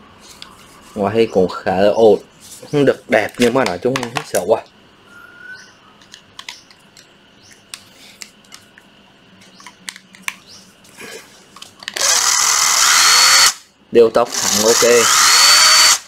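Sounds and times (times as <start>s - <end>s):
hands handling plastic tool housing: 3.1s - 4.4s, 6.0s - 7.1s
small clicks and taps: 6.0s - 10.5s
cordless impact driver spinning: 11.9s - 13.6s, 14.3s - 16.0s.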